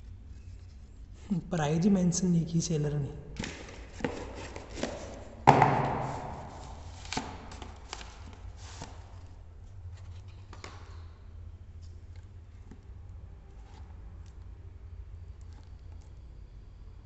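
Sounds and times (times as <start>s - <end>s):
paper packaging crackling rustle: 6.0s - 11.0s.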